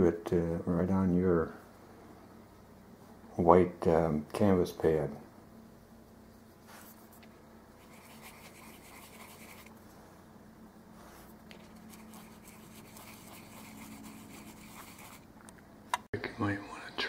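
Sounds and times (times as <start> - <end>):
low steady hum: 0.0 - 17.0
paintbrush bristles brushing: 6.3 - 10.2, 10.9 - 15.3.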